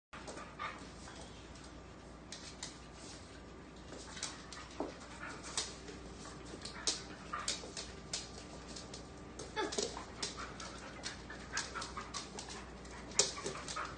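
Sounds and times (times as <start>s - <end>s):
claws clicking on wooden floor: 4.0s - 13.9s.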